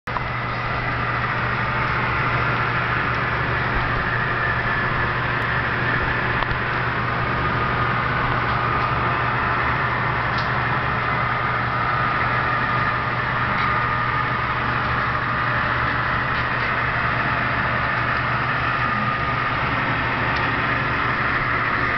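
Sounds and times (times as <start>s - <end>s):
model train mechanical hum: 0.1s - 21.9s.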